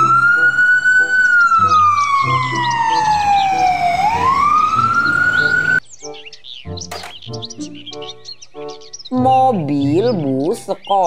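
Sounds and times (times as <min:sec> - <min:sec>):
ambulance siren wailing: 0:00.0 - 0:05.8.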